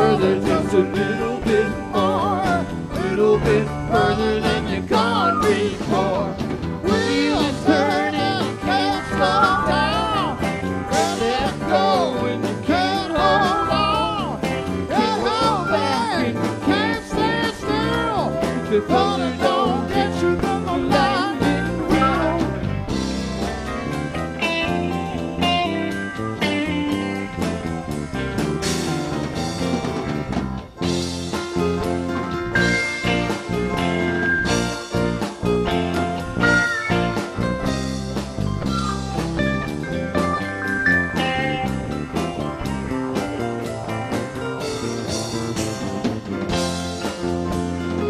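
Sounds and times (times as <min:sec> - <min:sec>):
drums: 0:00.0 - 0:48.0
electric bass: 0:00.0 - 0:48.0
lead guitar bending notes: 0:32.5 - 0:44.9.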